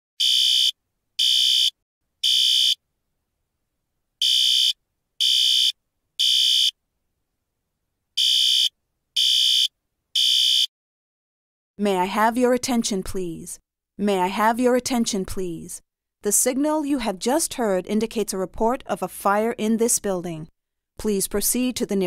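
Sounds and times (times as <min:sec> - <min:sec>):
fire alarm beeps: 0:00.2 - 0:02.8, 0:08.2 - 0:10.7.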